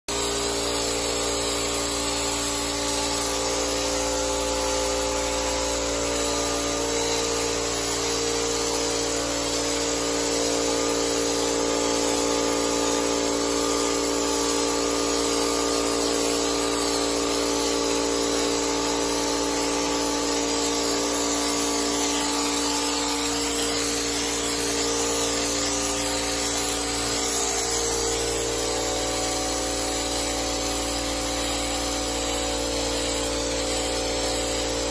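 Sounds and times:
spray gun hissing: 0.1s - 34.9s
machine hum: 15.2s - 34.9s.

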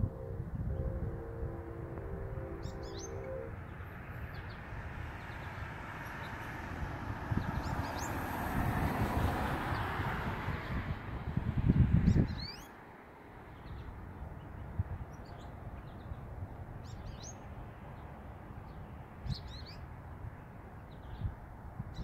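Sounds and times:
low rumble: 0.0s - 5.6s
finches chirping: 2.6s - 4.6s.

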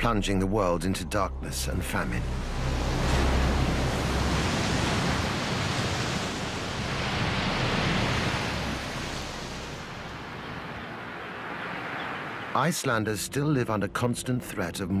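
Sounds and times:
churning water rushing: 1.6s - 13.0s.

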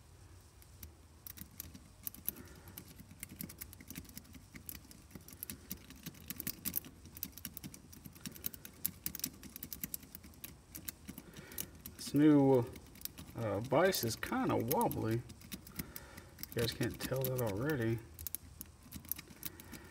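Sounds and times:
lock pick clicking in padlock: 1.3s - 12.0s.

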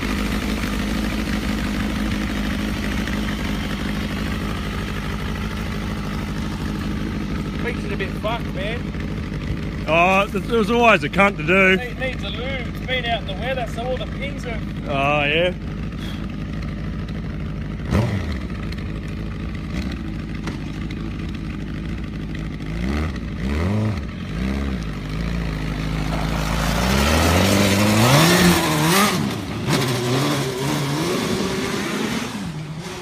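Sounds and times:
engine knock: 0.0s - 26.2s
motorcycle engine revving: 0.0s - 33.0s.

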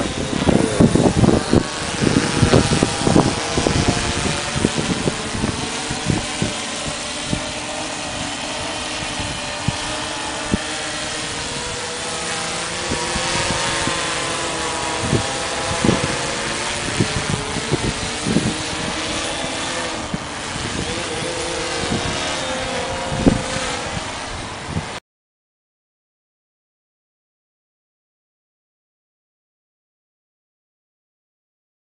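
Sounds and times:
drone propellers buzzing: 0.0s - 25.0s
wind buffeting microphone: 0.0s - 25.0s.

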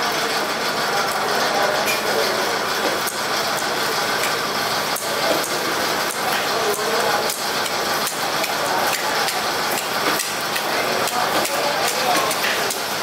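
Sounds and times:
busy market din: 0.0s - 13.0s
sharp clicks and knocks: 2.8s - 12.9s.

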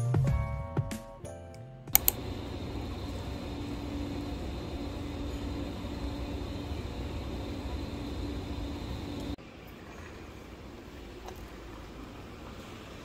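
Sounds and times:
music: 0.0s - 2.0s
sharp clicks: 1.9s - 9.4s
background hum and hiss: 1.9s - 13.0s.

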